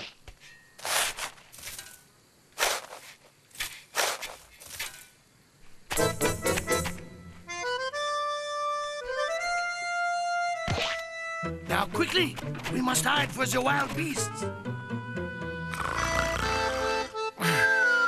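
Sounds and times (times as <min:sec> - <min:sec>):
cartoon shovel swishes: 0:02.6 - 0:05.1
music with held chords: 0:06.0 - 0:11.7.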